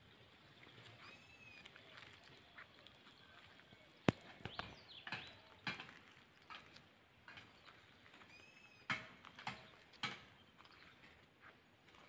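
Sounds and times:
footsteps on asphalt: 0:00.2 - 0:12.0.

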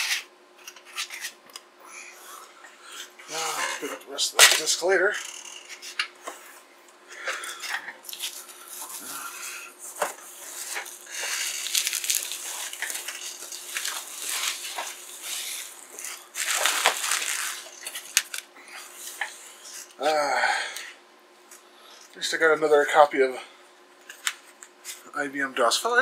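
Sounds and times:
faint steady hum: 0:00.0 - 0:26.0
bubble wrap crinkling: 0:08.0 - 0:19.8.

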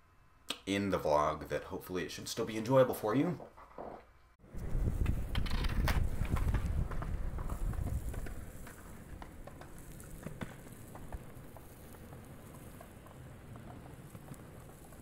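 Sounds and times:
wind rumbling on microphone: 0:04.4 - 0:15.0.

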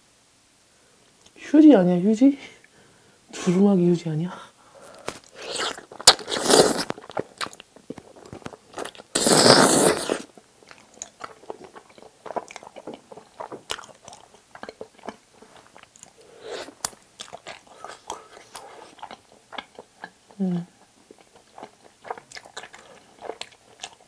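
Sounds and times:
slurping noodles: 0:04.8 - 0:07.0, 0:08.8 - 0:10.3
wet chewing: 0:04.8 - 0:20.3, 0:21.1 - 0:24.0.

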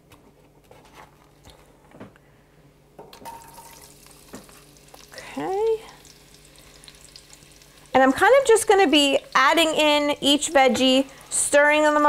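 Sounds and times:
onions sizzling in oil: 0:03.4 - 0:12.0.

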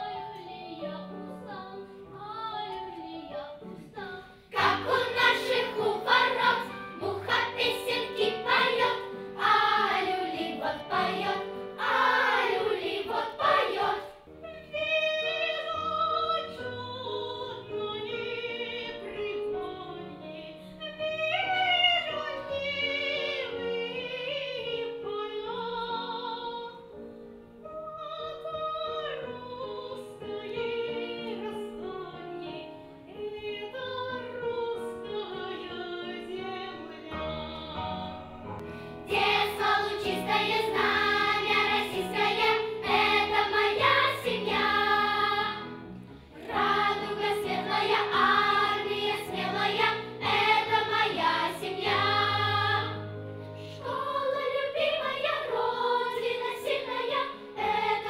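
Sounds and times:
children's choir singing: 0:00.0 - 0:14.3, 0:39.0 - 0:58.0.

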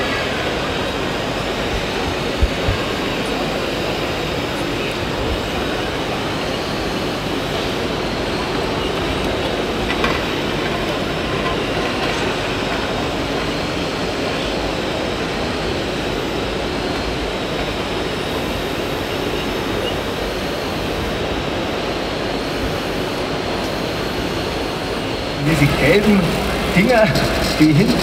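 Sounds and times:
model excavator running: 0:00.0 - 0:28.0
thin high whine: 0:00.0 - 0:28.0
hall noise din: 0:22.9 - 0:28.0.

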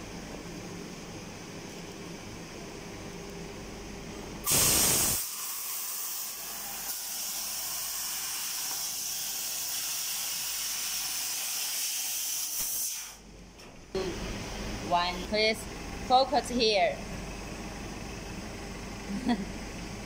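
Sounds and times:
laser cutter gas jet hissing: 0:04.4 - 0:13.2
loud burst of hissing: 0:04.4 - 0:13.2.

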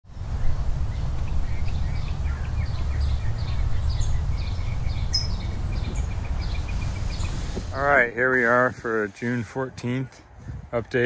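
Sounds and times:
low outdoor rumble: 0:00.1 - 0:09.6
small birds chirping: 0:00.1 - 0:10.4.

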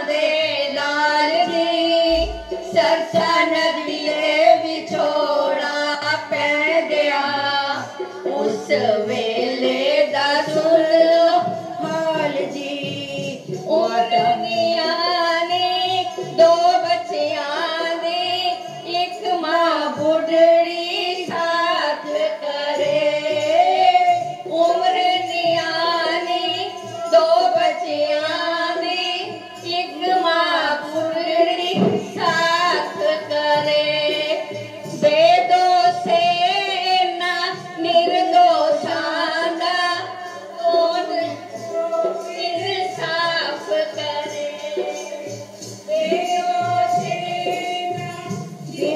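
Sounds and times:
girls singing devotional song: 0:00.0 - 0:48.9
hand drum beats: 0:00.0 - 0:48.9.

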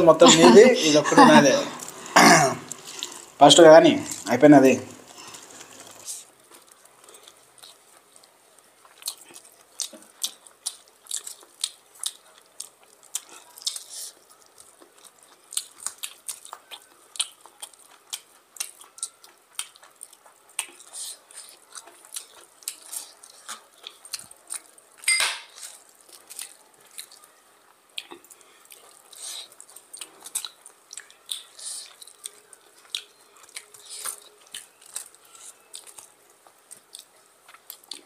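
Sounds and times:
fingers squeezing rice and curry: 0:05.1 - 0:24.8, 0:25.6 - 0:27.4
chewing with lip smacks: 0:05.1 - 0:38.0.

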